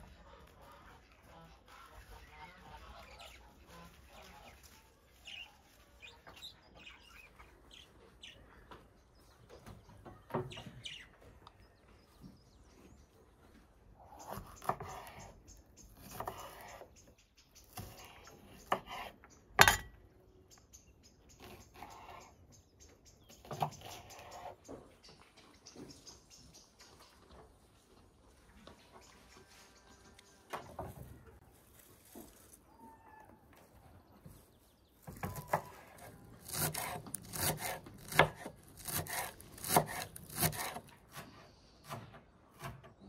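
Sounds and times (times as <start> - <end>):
small birds chirping: 0.0 - 19.6, 20.2 - 43.0
knife cutting on wooden board: 16.0 - 16.8, 17.7 - 19.2, 35.3 - 41.2.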